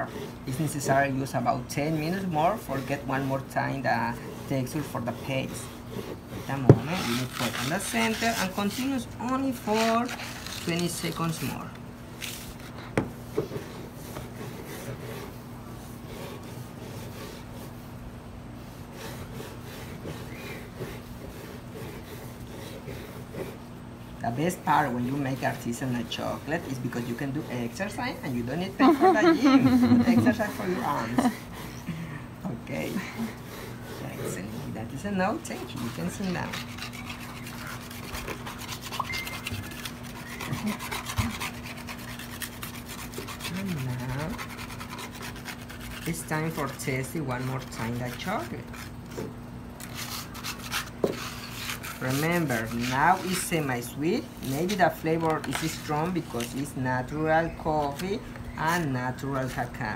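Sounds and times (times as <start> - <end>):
stone roller scraping on stone: 0.0 - 12.7, 32.9 - 56.6.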